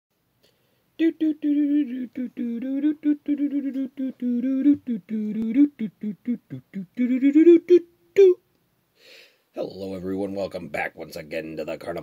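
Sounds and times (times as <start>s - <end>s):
person humming a tune: 1.0s - 8.4s.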